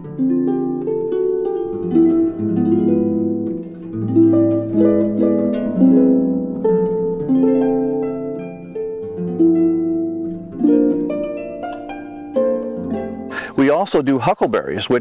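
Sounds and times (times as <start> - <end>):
plucked string instrument melody: 0.0 - 15.0.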